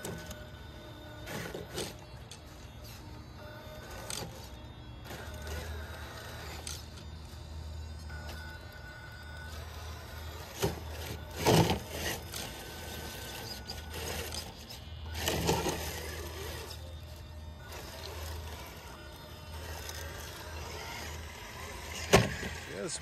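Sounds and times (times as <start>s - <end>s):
high motor whine: 0.0s - 23.0s
tyres crunching and scraping on stone: 9.6s - 19.0s.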